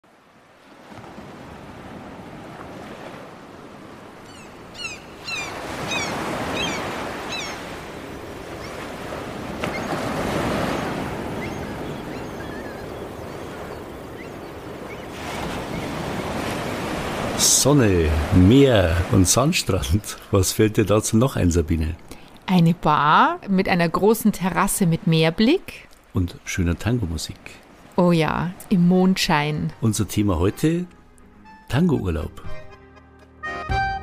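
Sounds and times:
waves washing onto a beach: 0:00.0 - 0:04.2, 0:05.5 - 0:20.8
short high falling bird calls: 0:04.2 - 0:07.7, 0:09.7 - 0:16.8.

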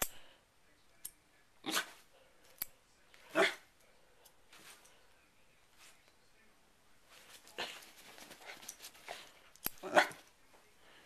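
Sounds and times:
dog barking: 0:03.3 - 0:03.6, 0:09.8 - 0:10.2.

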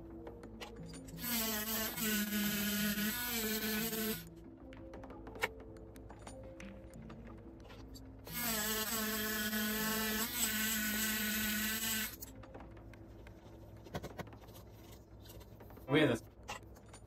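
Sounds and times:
rotary tool buzzing on coin: 0:01.1 - 0:04.3, 0:08.3 - 0:12.3.

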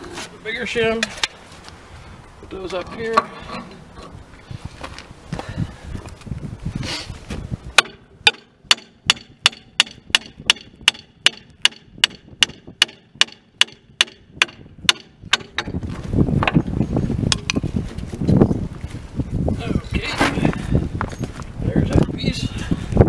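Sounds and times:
hammer tapping on steel: 0:07.8 - 0:15.7.

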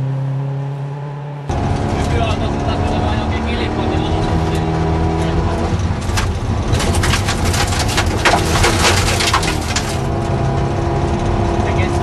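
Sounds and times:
car engine running hard: 0:00.0 - 0:12.0
gravel clattering under car: 0:05.7 - 0:10.6.

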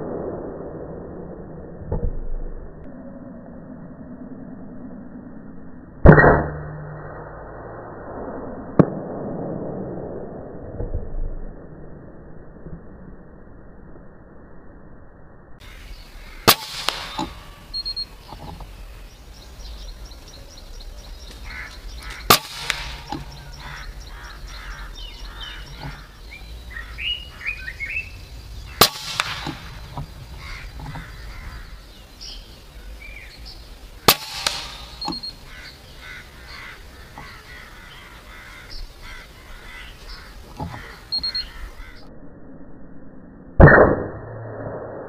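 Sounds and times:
crows cawing: 0:15.6 - 0:18.6, 0:20.9 - 0:32.0, 0:34.6 - 0:42.1
air rifle firing: 0:16.4 - 0:18.4, 0:21.5 - 0:26.1, 0:28.4 - 0:31.6, 0:34.0 - 0:35.7.

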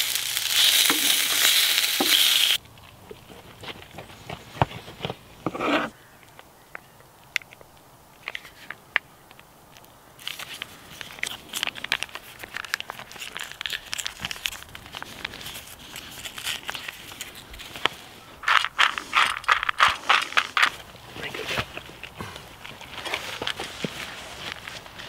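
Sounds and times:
plastic sachet crinkling: 0:10.2 - 0:20.8.

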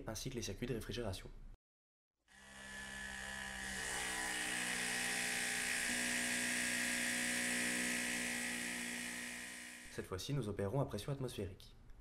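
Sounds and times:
electric pump whirring: 0:02.3 - 0:09.9.

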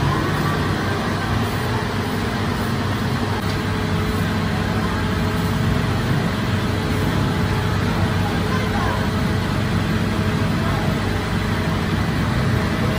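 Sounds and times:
bakery machinery humming: 0:00.0 - 0:12.9.

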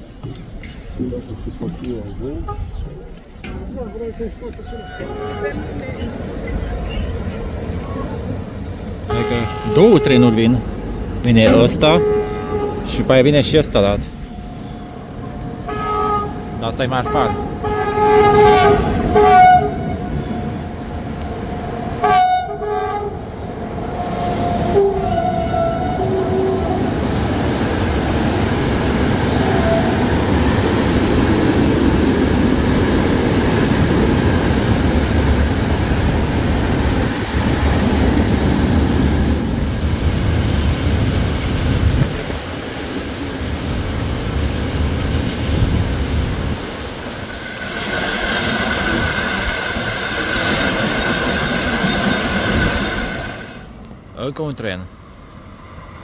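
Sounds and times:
train wagons rumbling past: 0:00.0 - 0:56.0
locomotive horn blasts: 0:04.7 - 0:05.9, 0:09.1 - 0:10.6, 0:11.5 - 0:13.1, 0:15.6 - 0:20.6, 0:22.0 - 0:23.3, 0:24.5 - 0:26.8.

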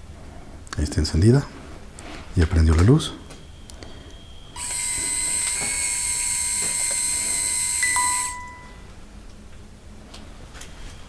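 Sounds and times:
electronic hiss with high whine: 0:01.0 - 0:08.9
faint beep-like tone: 0:03.2 - 0:05.7.

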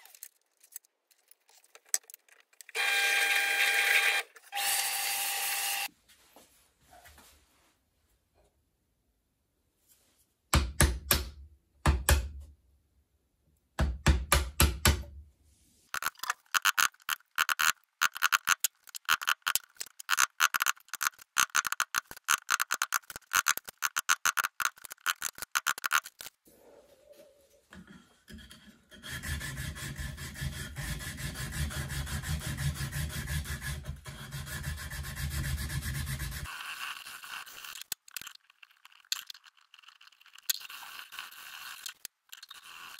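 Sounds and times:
chisel scraping wood: 0:28.3 - 0:38.0.

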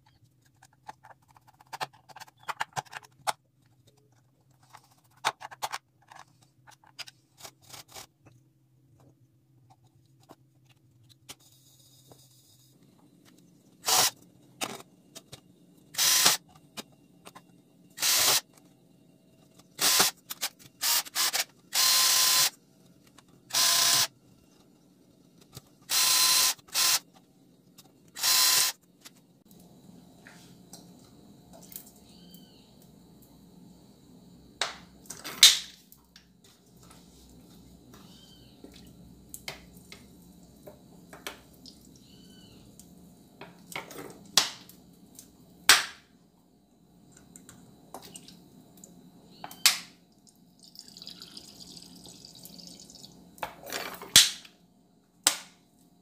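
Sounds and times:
faint steady hum: 0:00.0 - 0:56.0
electric drill running: 0:13.8 - 0:14.1, 0:16.0 - 0:16.4, 0:18.0 - 0:18.4, 0:19.8 - 0:20.1, 0:20.8 - 0:22.5, 0:23.5 - 0:24.1, 0:25.9 - 0:27.0, 0:28.2 - 0:28.8.

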